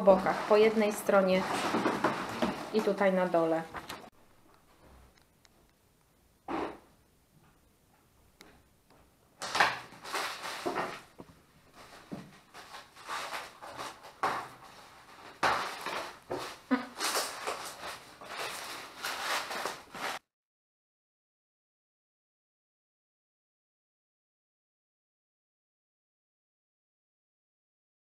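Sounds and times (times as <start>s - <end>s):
cardboard and plastic rustling: 0.0s - 4.1s, 9.4s - 20.2s.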